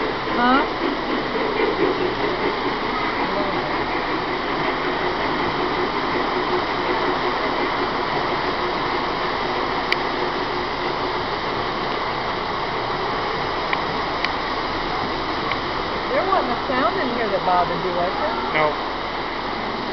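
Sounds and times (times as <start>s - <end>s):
model train whirring rumble: 0.0s - 19.9s
faint clicks: 13.7s - 14.4s, 15.4s - 15.6s.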